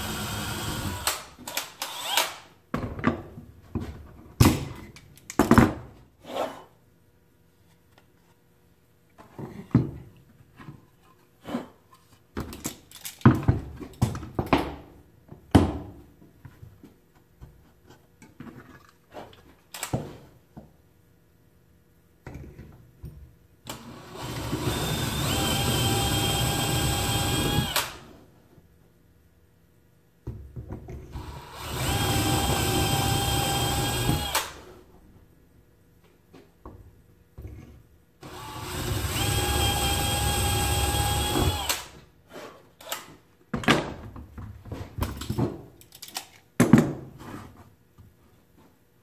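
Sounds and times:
cordless drill whining: 0.0 - 1.2, 1.8 - 2.3, 23.9 - 27.9, 31.2 - 34.5, 38.2 - 41.8.

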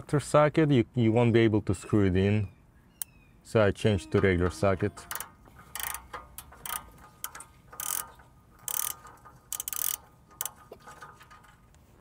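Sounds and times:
socket ratchet clicking: 5.1 - 11.1.

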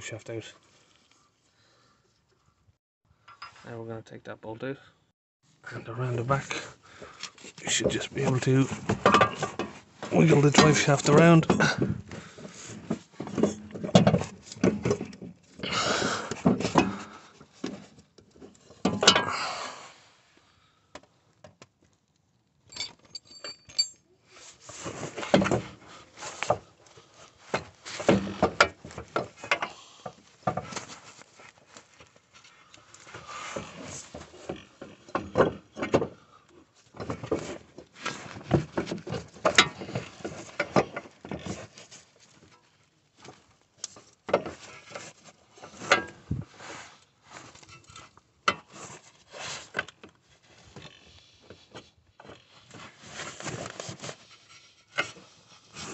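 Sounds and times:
metallic clinks and knocks: 22.7 - 24.1.

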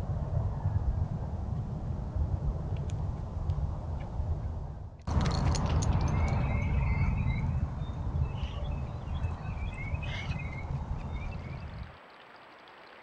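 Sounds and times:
steady low rumble: 0.0 - 11.9
small birds chirping: 5.6 - 11.8.

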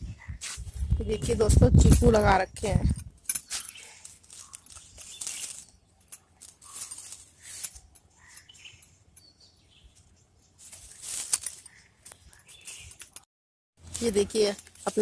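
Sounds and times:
leaves rustling: 0.4 - 8.9, 9.7 - 13.2, 13.8 - 15.0
faint bird chirps: 3.5 - 13.0.

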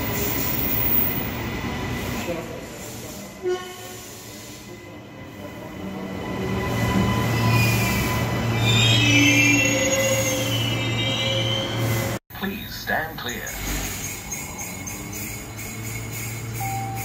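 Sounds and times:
train wheels squealing: 0.0 - 12.2, 13.4 - 17.0
electric train rumbling: 0.0 - 17.0.

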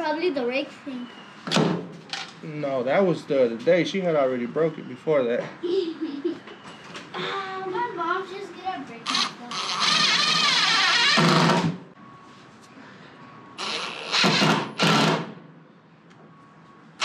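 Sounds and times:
cordless drill driving into wood: 9.1 - 11.8, 13.6 - 15.4.

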